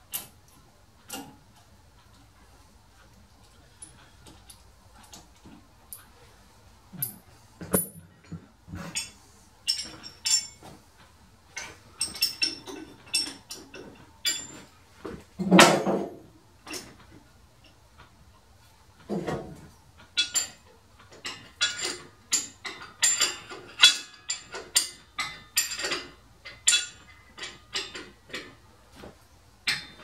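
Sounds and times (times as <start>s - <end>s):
metal tools clanking: 7.0s - 10.7s, 11.6s - 14.7s, 21.2s - 28.6s.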